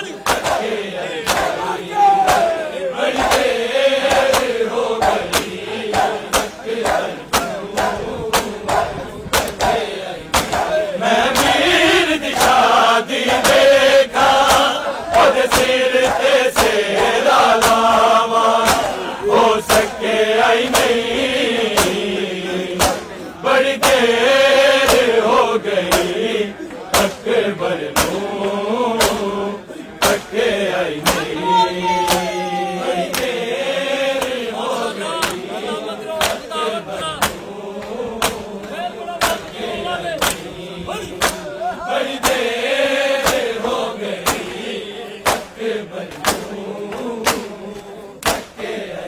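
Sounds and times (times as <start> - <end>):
crowd of men chanting: 0.0 - 49.0
hands slapping bare chests: 0.2 - 11.6, 14.4 - 18.0, 18.6 - 19.0, 20.6 - 21.0, 21.7 - 22.0, 22.8 - 23.1, 23.8 - 24.1, 24.8 - 25.1, 25.9 - 26.2, 26.9 - 27.2, 27.9 - 28.2, 29.0 - 29.3, 30.0 - 30.4, 31.0 - 31.3, 32.0 - 32.4, 33.0 - 33.4, 34.1 - 34.4, 35.2 - 35.4, 36.2 - 36.5, 37.2 - 39.6, 40.2 - 40.5, 41.2 - 41.5, 42.2 - 42.5, 43.2 - 43.6, 44.2 - 44.6, 45.2 - 48.6.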